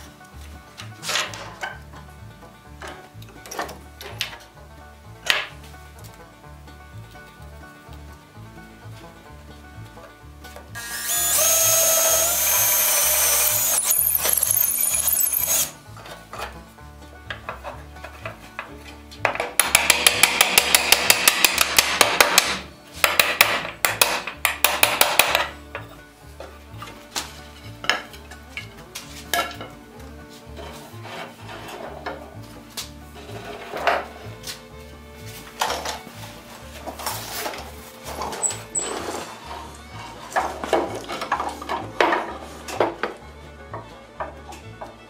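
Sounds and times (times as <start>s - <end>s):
background music: 0.0s - 45.0s
power drill whining into wood: 10.8s - 15.8s
hand tool scraping wood: 11.2s - 16.2s, 30.2s - 34.6s, 35.2s - 42.9s.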